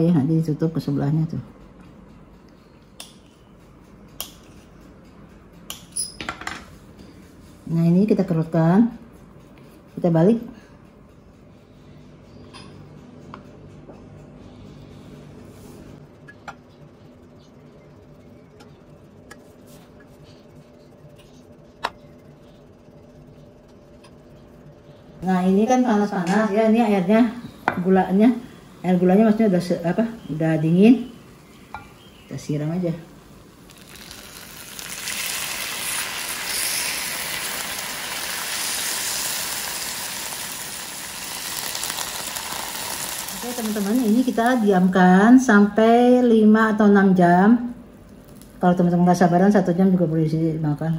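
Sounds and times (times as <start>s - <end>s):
low steady hum: 0.0s - 50.9s
pastry sizzling hiss: 26.9s - 45.1s.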